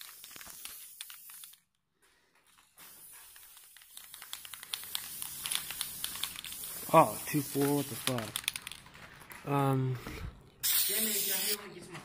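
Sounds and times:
spray can hissing: 0:00.0 - 0:01.6, 0:02.8 - 0:08.6, 0:10.6 - 0:11.6
crackly handling noise: 0:07.5 - 0:09.5.

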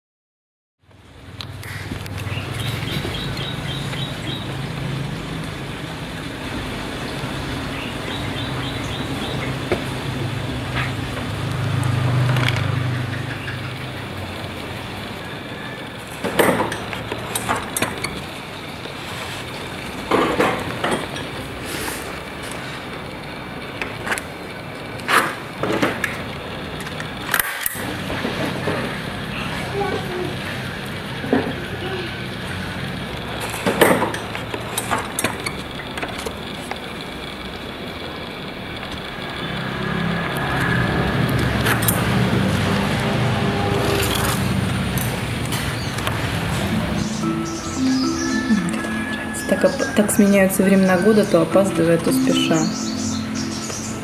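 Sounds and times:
low steady drone: 0:34.0 - 0:54.0.

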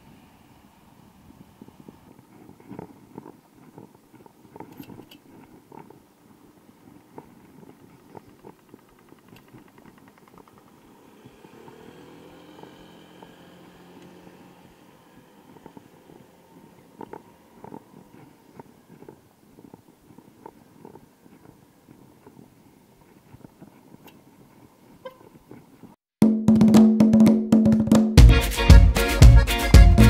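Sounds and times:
bicycle rattling over pavement: 0:01.8 - 0:25.9
motor vehicle passing: 0:06.8 - 0:19.4
fast even ticking: 0:07.2 - 0:11.5.

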